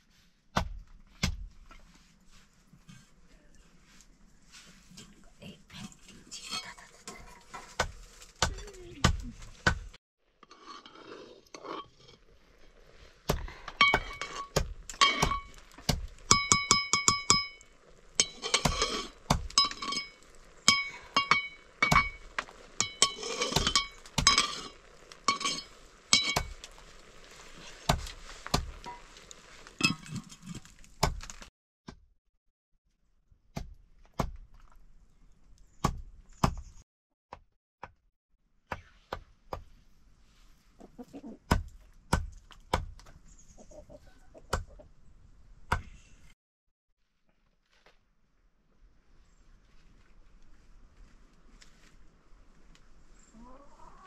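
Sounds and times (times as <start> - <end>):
metal spatula scraping pan: 10.4 - 12.9, 13.7 - 16.3, 18.2 - 27.8.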